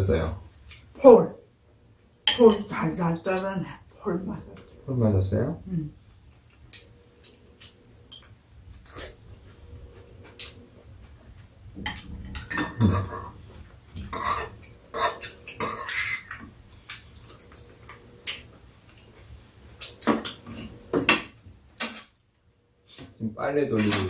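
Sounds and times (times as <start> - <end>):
cutlery clinking against bowls: 11.8 - 13.4, 14.0 - 18.4.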